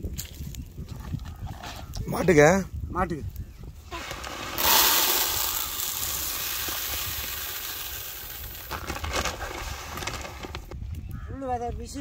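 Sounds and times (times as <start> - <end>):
grass seed pouring into basin: 4.1 - 10.4.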